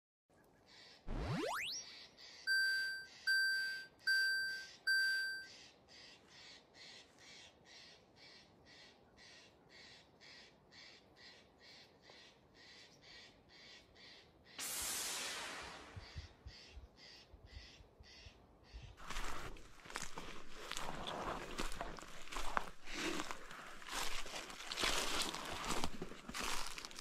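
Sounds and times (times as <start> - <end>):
electronic warning beeps: 2.5 - 5.5.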